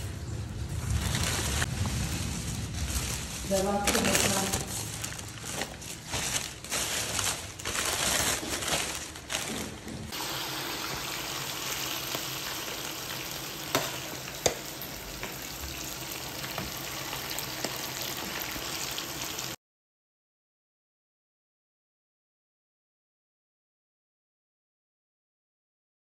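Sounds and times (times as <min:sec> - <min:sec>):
plastic bag rustling: 0:00.0 - 0:10.2
chicken sizzling in hot oil: 0:10.1 - 0:19.6.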